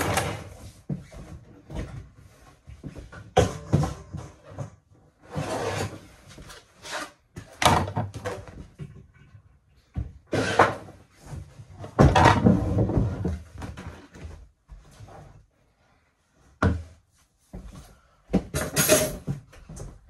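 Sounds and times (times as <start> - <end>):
cupboards and drawers opening and shutting: 0.0 - 0.6, 3.2 - 9.1, 10.2 - 14.1, 18.4 - 20.0.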